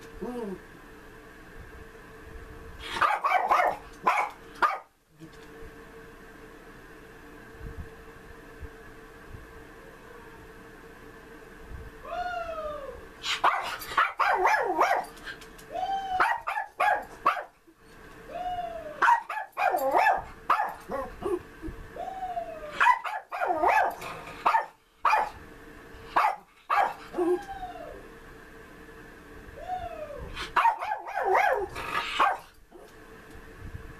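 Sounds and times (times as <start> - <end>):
small dog barking: 3.0 - 4.9, 13.4 - 15.2, 16.2 - 17.6, 19.0 - 21.4, 22.8 - 25.4, 26.1 - 27.0, 30.6 - 32.9
dog whining: 27.0 - 28.0.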